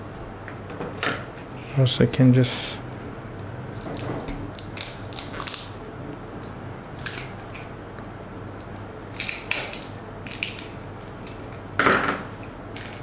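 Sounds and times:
wood sticks cracking and splintering: 0:03.8 - 0:05.8, 0:06.4 - 0:07.7, 0:08.6 - 0:11.6.

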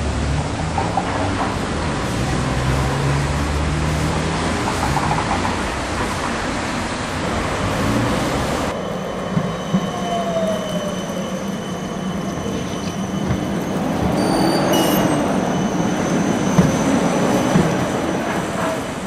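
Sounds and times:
street traffic noise: 0:00.0 - 0:19.0
tram passing on street track: 0:00.0 - 0:19.0
high-pitched whines: 0:08.7 - 0:17.0.

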